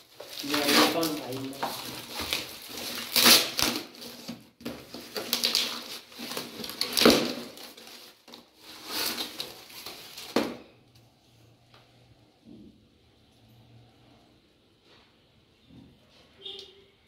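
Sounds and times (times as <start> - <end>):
cardboard and tape tearing: 0.0 - 10.6.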